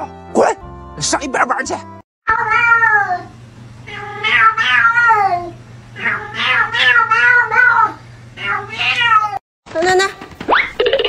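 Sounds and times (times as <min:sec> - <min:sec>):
cat yowling: 0:02.3 - 0:03.3, 0:03.9 - 0:09.4.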